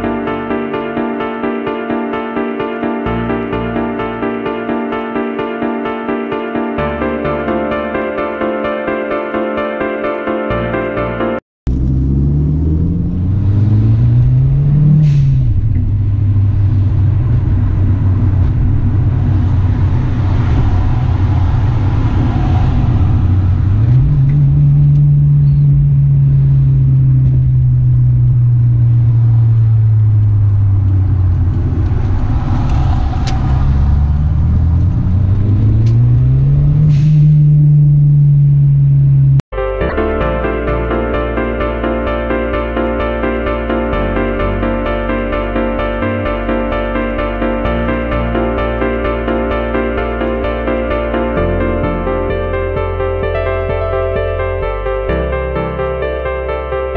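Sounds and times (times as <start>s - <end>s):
car engine revving from inside cabin: 11.7s - 39.4s.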